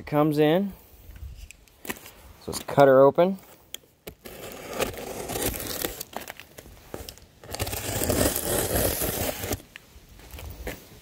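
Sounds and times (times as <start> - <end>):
tape crinkling and tearing: 4.0 - 10.5
knife slitting cardboard box: 4.2 - 6.3, 7.4 - 9.6.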